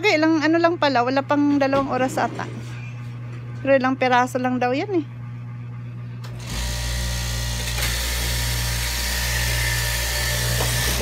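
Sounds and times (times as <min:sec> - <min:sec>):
cloth cutting machine buzzing: 0:06.2 - 0:11.0.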